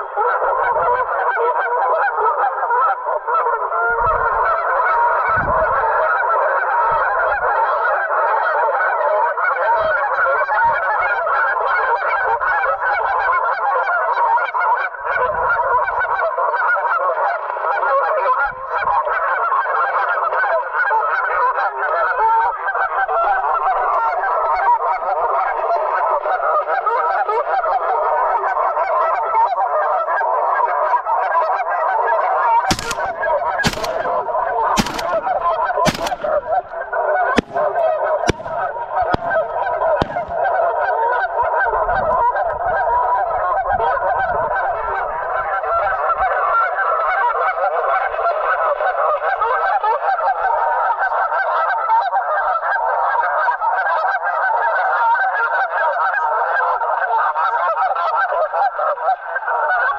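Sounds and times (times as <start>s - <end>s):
geese honking: 0.0s - 59.9s
faint sharp cracks: 32.6s - 40.7s
shotgun blasts: 32.7s - 40.7s.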